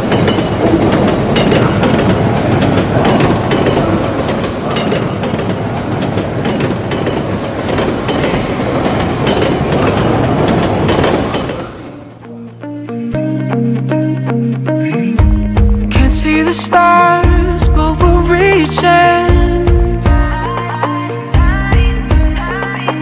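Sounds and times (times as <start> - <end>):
train wheels clacking over rail joints: 0.0 - 12.2
loud train noise: 0.0 - 13.2.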